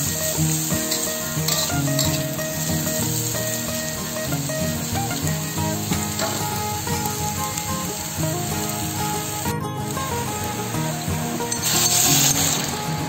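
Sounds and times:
spatula stirring in a wok: 0:00.0 - 0:09.4
background music with melody: 0:00.0 - 0:13.0
vegetables sizzling in a wok: 0:00.0 - 0:13.0.

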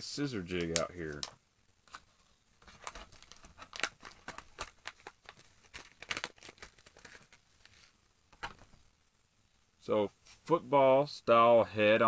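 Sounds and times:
plastic packaging crinkling: 0:01.9 - 0:08.8.

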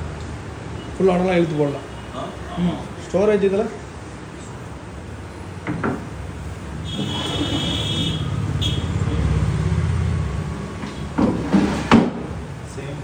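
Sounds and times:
wooden knock: 0:05.6 - 0:06.1, 0:11.1 - 0:12.3.

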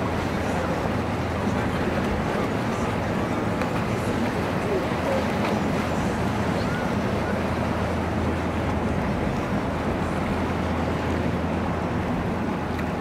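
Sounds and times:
boat engine droning: 0:00.0 - 0:13.0
water rushing: 0:00.0 - 0:13.0.

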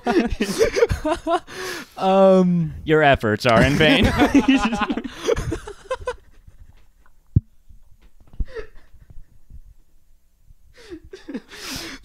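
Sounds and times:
breathy laughter: 0:00.0 - 0:01.6, 0:03.7 - 0:06.4.

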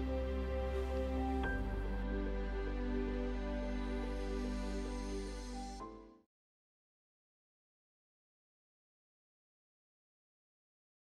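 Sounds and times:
gentle music of sustained chords: 0:00.0 - 0:06.3.

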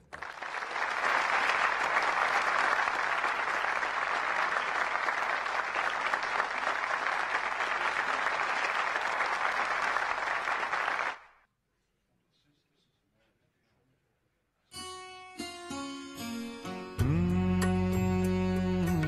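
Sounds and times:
audience applauding: 0:00.0 - 0:11.4.

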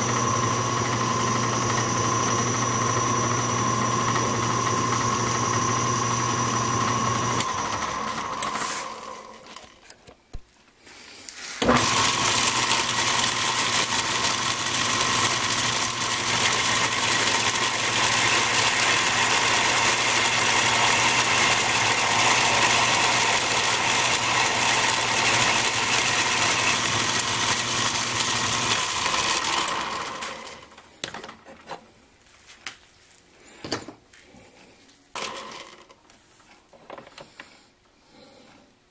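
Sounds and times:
bench lathe running: 0:00.0 - 0:09.7, 0:11.6 - 0:30.8.

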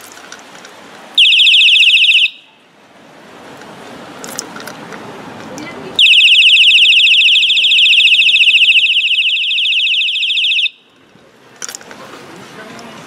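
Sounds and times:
electronic bicycle horn siren: 0:01.2 - 0:02.5, 0:06.0 - 0:10.8.

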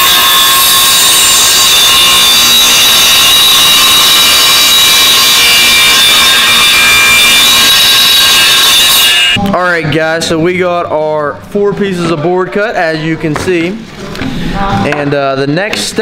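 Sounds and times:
saw cutting wood whine: 0:00.0 - 0:09.4.

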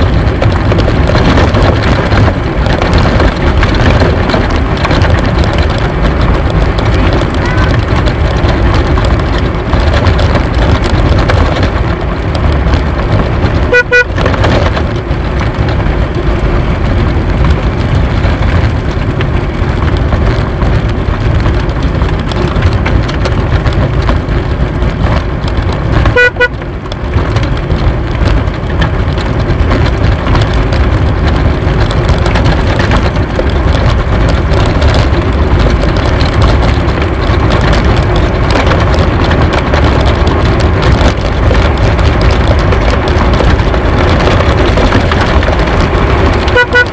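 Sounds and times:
cart wheels rumbling on road: 0:00.0 - 0:46.9
wind buffeting camera: 0:00.0 - 0:46.9
short tooting tones: 0:13.7 - 0:14.1.

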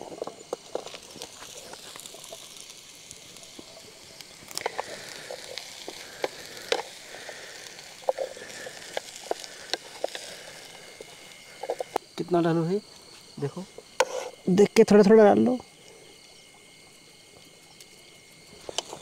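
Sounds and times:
oil pops and crackles: 0:00.0 - 0:12.0, 0:17.4 - 0:19.0
mushrooms sizzling in a pan: 0:00.0 - 0:19.0.

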